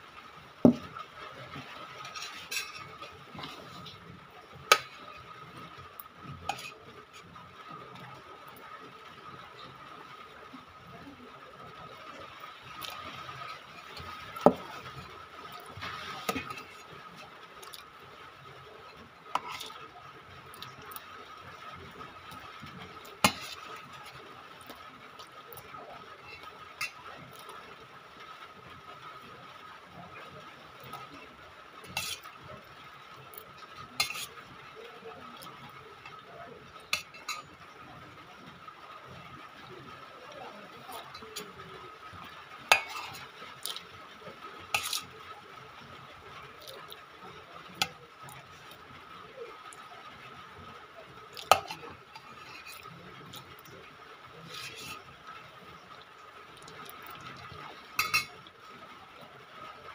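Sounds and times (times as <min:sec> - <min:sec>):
clinks on metal plate: 0:58.0 - 0:58.4.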